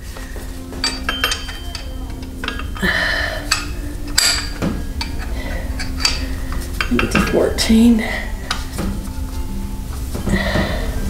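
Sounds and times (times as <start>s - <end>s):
wrench clinking on bolts: 0.8s - 2.9s, 3.5s - 7.4s.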